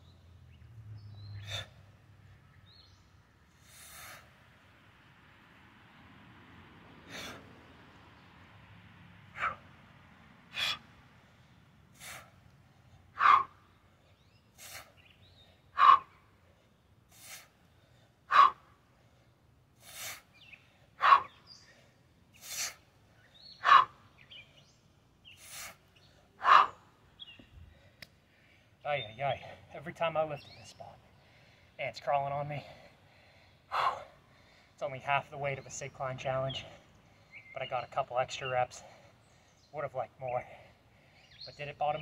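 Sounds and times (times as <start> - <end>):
man inhaling hissily: 3.6 - 4.3.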